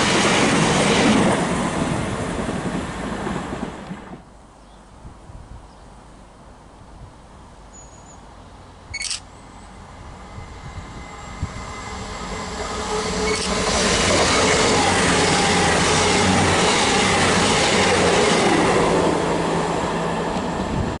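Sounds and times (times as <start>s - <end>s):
express train passing: 0.0s - 4.3s, 8.6s - 21.0s.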